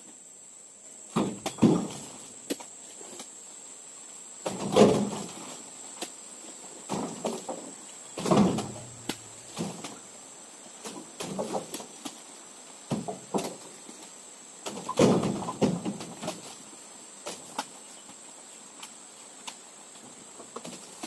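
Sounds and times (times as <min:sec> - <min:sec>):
fruit bunches thudding into truck bed: 0:01.1 - 0:02.3, 0:04.4 - 0:05.6, 0:06.9 - 0:10.0, 0:10.9 - 0:11.9, 0:12.9 - 0:13.7, 0:14.7 - 0:16.4.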